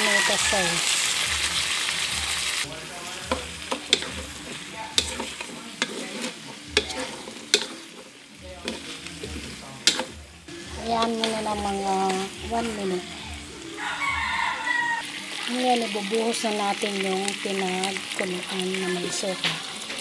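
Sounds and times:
meat sizzling in a wok: 0.0s - 20.0s
spatula knocking against wok: 3.2s - 7.8s, 8.6s - 10.2s.

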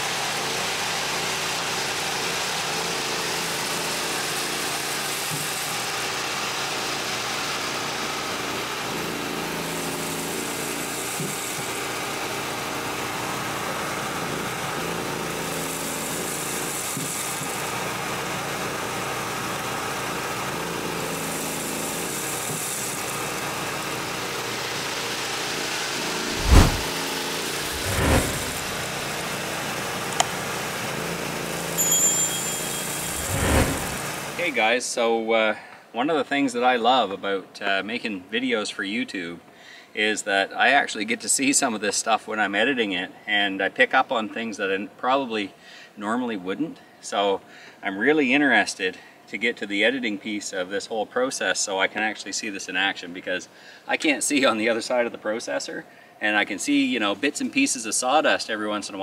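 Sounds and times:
dust collector blower running: 0.0s - 34.5s
engine running: 0.2s - 34.4s.

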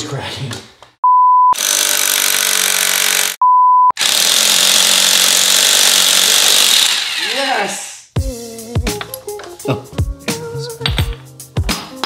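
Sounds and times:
test-tone bleeps: 3.4s - 4.0s.

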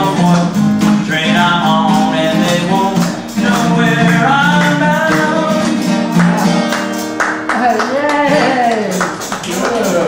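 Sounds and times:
man singing: 0.0s - 6.7s
fingerpicked acoustic guitar: 0.0s - 10.0s.

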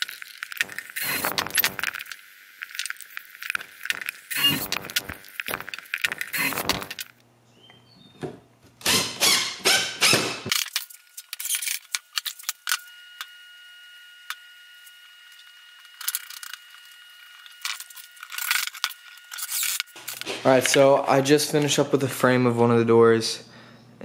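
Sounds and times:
power drill running: 0.5s - 2.0s, 3.5s - 7.1s.

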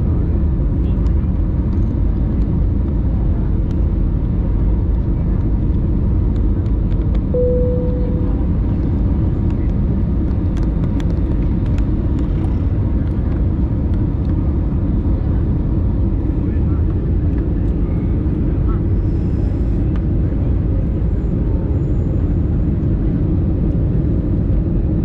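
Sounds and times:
airliner cabin engine and airflow noise: 0.0s - 25.0s
short single tone: 7.3s - 8.8s.

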